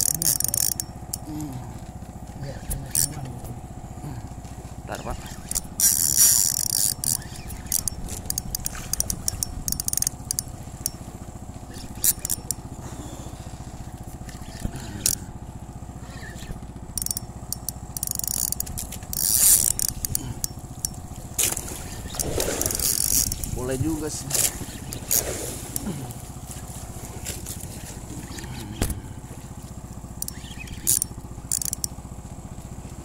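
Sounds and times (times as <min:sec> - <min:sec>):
fishing reel cranking clicks: 0:00.0 - 0:01.4, 0:02.0 - 0:03.3, 0:05.0 - 0:12.7, 0:14.0 - 0:15.3, 0:16.0 - 0:25.9, 0:30.1 - 0:32.0
boat engine throbbing: 0:00.0 - 0:33.0.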